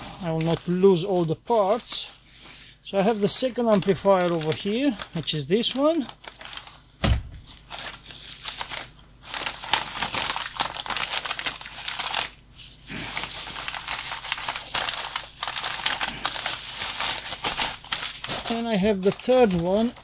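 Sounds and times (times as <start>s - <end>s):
plastic bags crinkling: 0.0s - 2.2s, 2.9s - 20.0s
thump: 7.0s - 7.4s.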